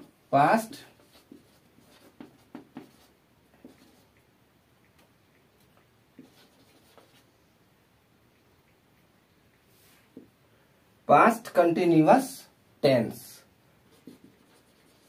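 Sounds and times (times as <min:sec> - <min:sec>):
marker writing on whiteboard: 0:00.0 - 0:07.3, 0:13.9 - 0:15.0.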